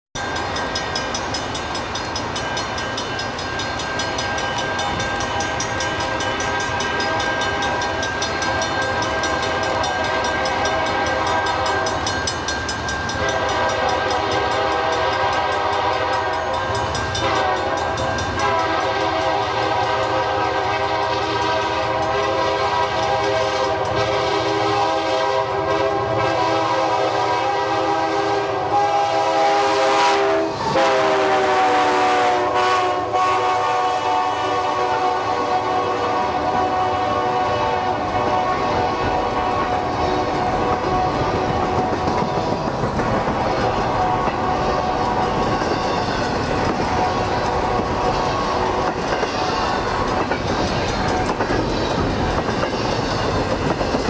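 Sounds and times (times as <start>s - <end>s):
locomotive air horn blasts: 6.3s - 12.1s, 13.2s - 42.5s, 43.4s - 45.7s, 46.7s - 49.8s.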